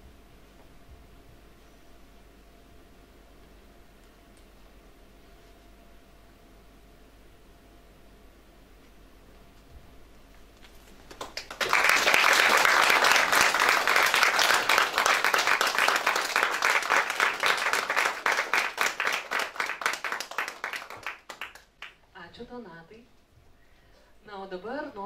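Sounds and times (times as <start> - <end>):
audience applauding: 11.0 - 22.0.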